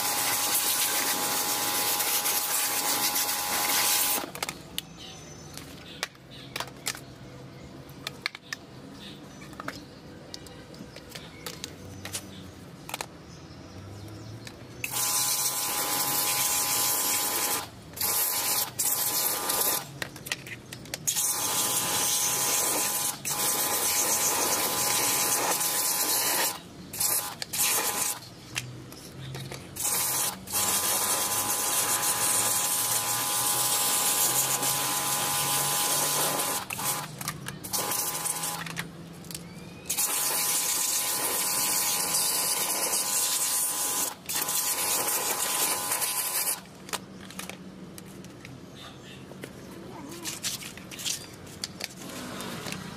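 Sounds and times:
pressure washer spraying: 0.0s - 4.3s, 14.8s - 19.9s, 21.1s - 28.2s, 29.8s - 38.7s, 39.9s - 46.6s
plastic parts clicking and knocking: 9.5s - 12.2s, 12.8s - 13.2s.

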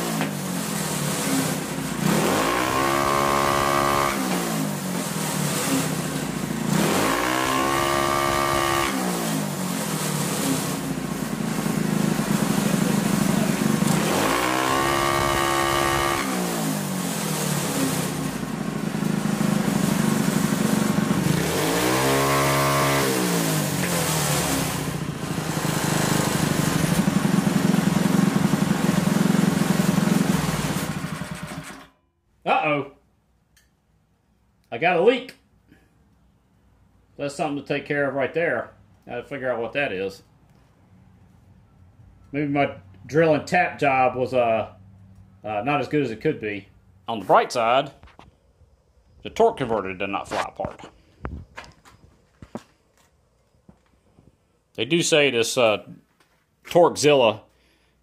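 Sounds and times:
single-cylinder engine revving: 0.0s - 32.0s.

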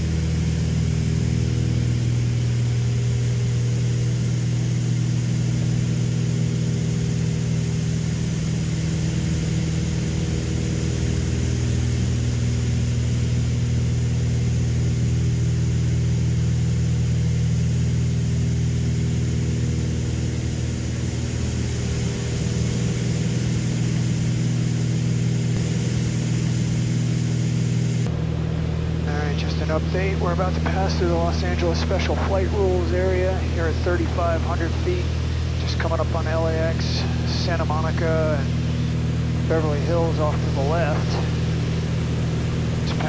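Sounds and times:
aircraft engines droning in cabin: 0.0s - 43.0s.

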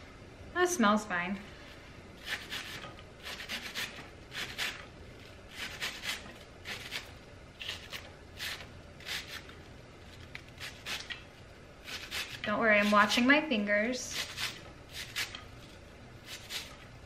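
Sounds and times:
knife slicing cabbage: 2.2s - 4.8s, 5.5s - 9.5s, 10.4s - 11.2s, 11.8s - 13.2s, 14.1s - 15.5s, 16.2s - 16.8s.

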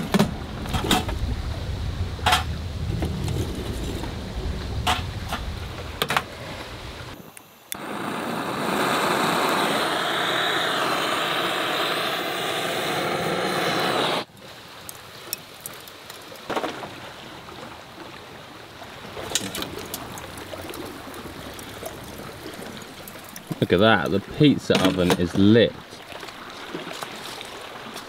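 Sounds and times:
gas blowtorch hissing: 7.7s - 14.3s
charcoal crackling and snapping: 14.8s - 16.5s, 19.2s - 23.7s.

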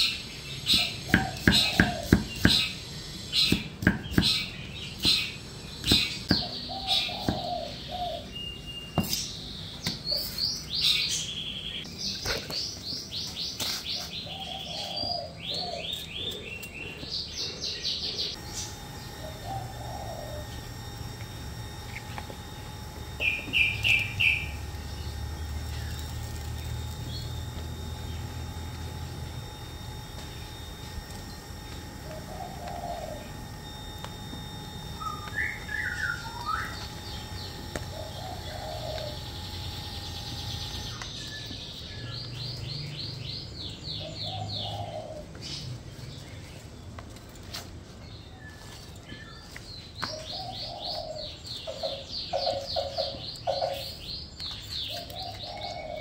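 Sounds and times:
birds chirping: 0.0s - 56.0s
cleaver chopping on wooden board: 0.7s - 2.7s, 3.5s - 6.5s
gas burner hum: 18.2s - 45.8s.

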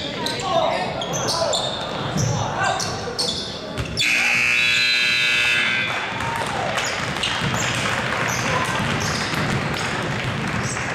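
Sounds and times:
voices in a gym: 0.0s - 9.9s
basketballs bouncing: 3.7s - 4.0s, 5.4s - 10.9s
scoreboard buzzer: 4.0s - 6.0s.

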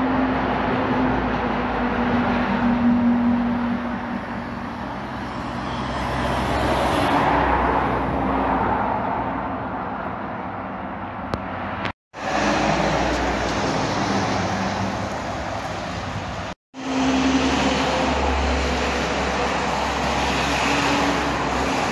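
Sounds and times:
heavy vehicle passing: 0.0s - 9.5s, 11.6s - 21.9s
lorry passing: 1.8s - 9.5s.

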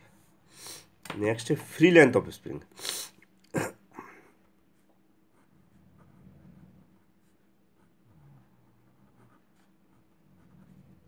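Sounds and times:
pen scratching on paper: 4.7s - 11.0s.

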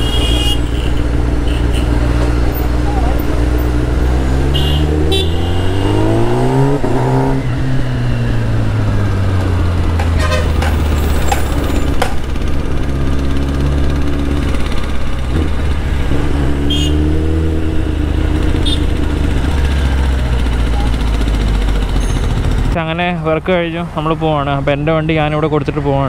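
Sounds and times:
vehicle horn toot: 0.0s - 2.1s, 4.4s - 6.1s, 10.1s - 10.7s, 16.6s - 17.1s, 18.6s - 18.9s
motorcycle engine revving: 0.0s - 23.1s.

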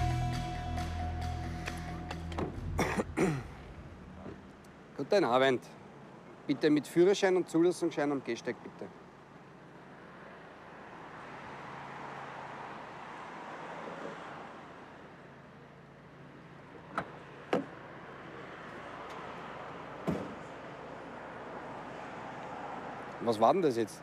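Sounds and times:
low hum: 0.0s - 4.6s
street traffic noise: 0.0s - 24.0s.

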